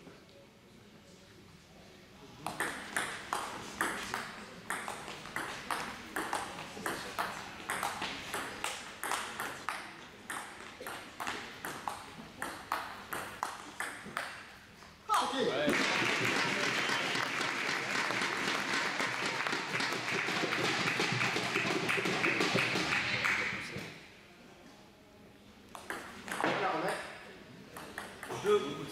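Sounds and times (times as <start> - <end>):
table tennis ball clicking: 2.5 - 14.4, 25.8 - 26.5.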